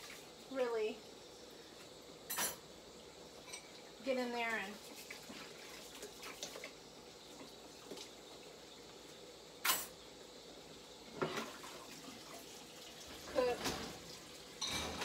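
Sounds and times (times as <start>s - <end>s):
dishes clattering: 2.3s - 2.6s, 9.6s - 10.0s, 14.6s - 15.0s
dishes clinking: 2.3s - 2.7s, 3.4s - 3.8s, 9.6s - 10.0s, 14.6s - 15.0s.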